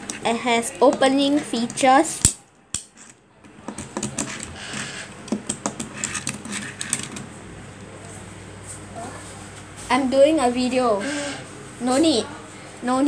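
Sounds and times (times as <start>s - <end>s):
toy car tapping on desk: 3.7s - 7.0s.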